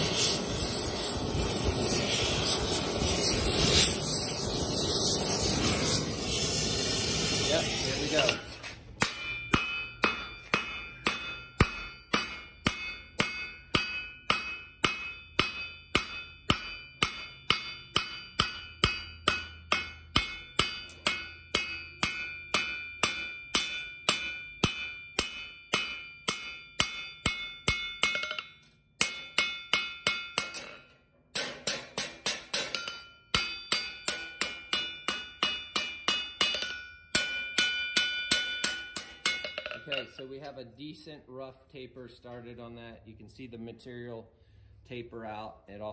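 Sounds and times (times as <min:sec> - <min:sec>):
hammer striking metal on anvil: 0:08.2 - 0:40.3.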